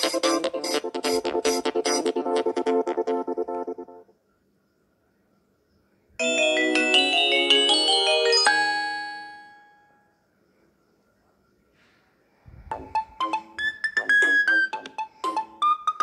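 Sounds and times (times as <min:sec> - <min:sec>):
phone ringtone chimes: 0:06.2 - 0:10.0.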